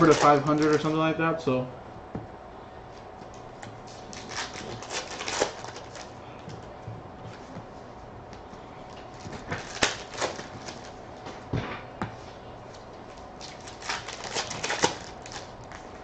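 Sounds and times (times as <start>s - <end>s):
wrapper pulled open: 3.9s - 6.1s, 13.4s - 15.8s.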